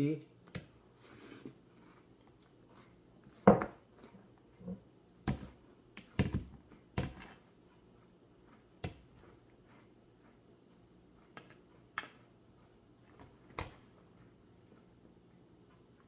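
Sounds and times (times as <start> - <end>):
person chewing: 6.6 - 13.0.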